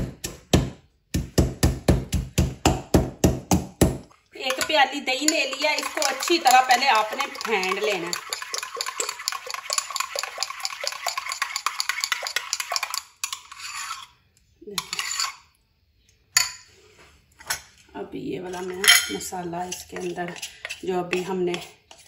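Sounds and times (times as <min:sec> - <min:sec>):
metal spoon scraping ceramic bowl: 0:04.4 - 0:15.5, 0:18.4 - 0:22.0.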